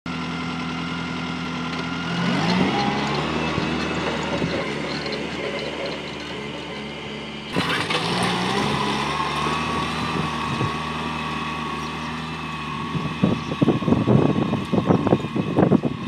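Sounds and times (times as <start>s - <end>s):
tractor diesel engine running: 0.1s - 16.0s
wind buffeting microphone: 9.6s - 16.0s.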